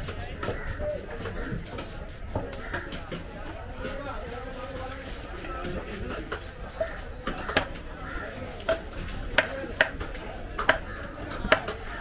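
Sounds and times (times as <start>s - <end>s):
knife chopping on wooden block: 9.4s - 11.8s.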